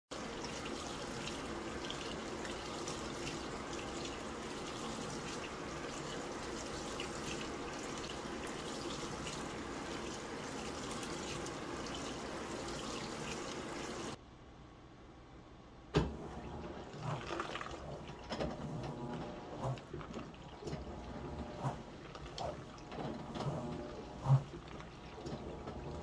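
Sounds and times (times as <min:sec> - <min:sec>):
water dripping: 0:00.1 - 0:14.2
water splashing from washing machine: 0:00.1 - 0:14.2, 0:16.0 - 0:26.0.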